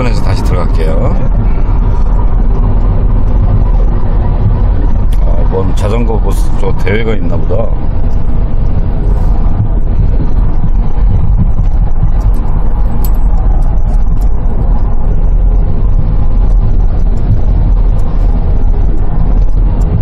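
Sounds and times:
van engine and road rumble: 0.0s - 20.0s.

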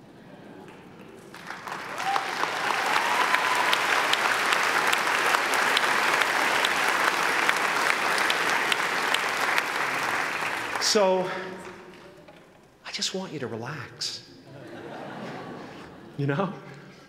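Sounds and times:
audience applause: 0.6s - 11.8s.

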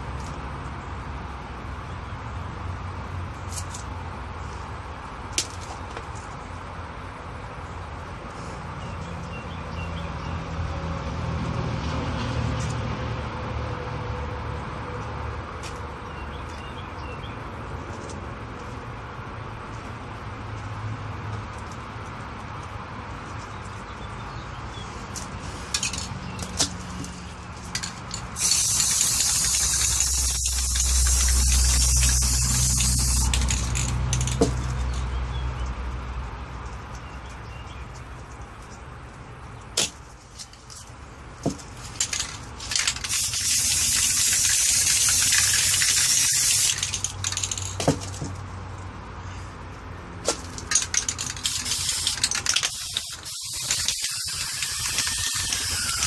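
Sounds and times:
spray-paint can hissing: 28.4s - 34.5s, 42.1s - 47.7s, 50.7s - 56.0s.

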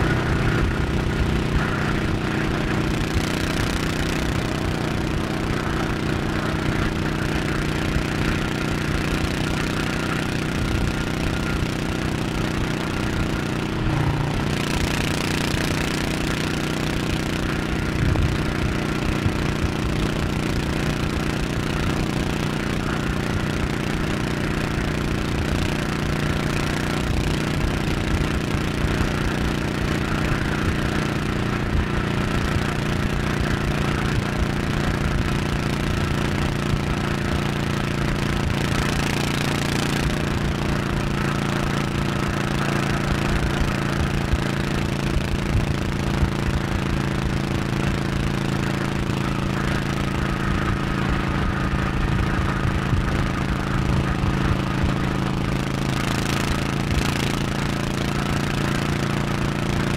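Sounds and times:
motorcycle engine running: 0.0s - 59.9s
wind and road noise: 0.0s - 59.9s.

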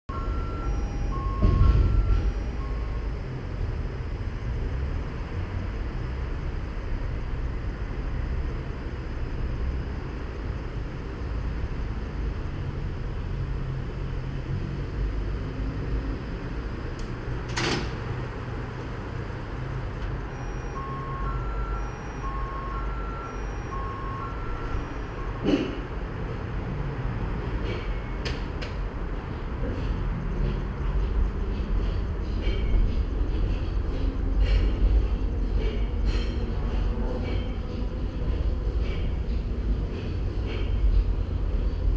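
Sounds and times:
two-pitch electronic beeps: 0.1s - 3.4s, 20.3s - 25.5s
railway car low rumble: 0.1s - 41.9s
thump: 1.4s - 2.2s.

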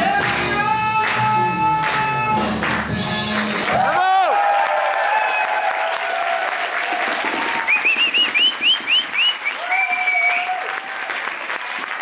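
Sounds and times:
audience applauding: 1.8s - 12.0s
crowd cheering: 3.5s - 12.0s
whistled chirps: 7.7s - 10.5s.

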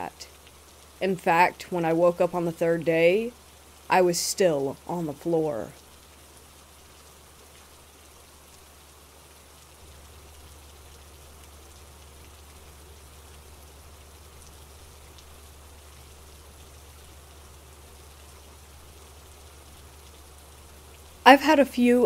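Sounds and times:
faint rainfall: 0.0s - 22.0s
low steady hum: 0.0s - 22.0s
raindrops ticking: 0.0s - 22.0s.

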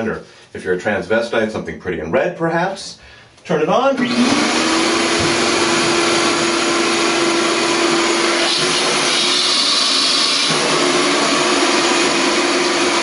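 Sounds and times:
shop vacuum running: 3.9s - 13.0s
vacuum hose sucking at drain: 4.0s - 13.0s.

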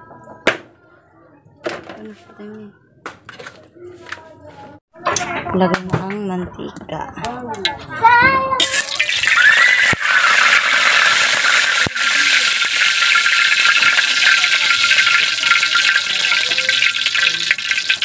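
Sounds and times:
oil sizzling in a wok: 8.6s - 18.0s.

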